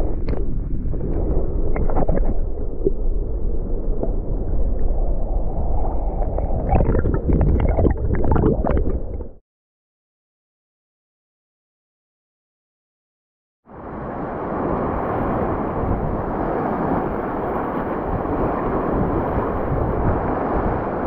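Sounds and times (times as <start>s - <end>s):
crackling bubbles and clicks: 0.0s - 9.4s
underwater surf rumble and sloshing: 0.0s - 9.4s, 13.8s - 21.0s.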